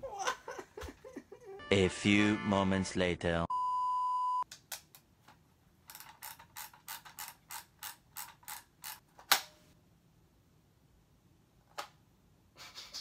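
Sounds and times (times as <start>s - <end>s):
small ratcheting clicks: 5.9s - 9.0s.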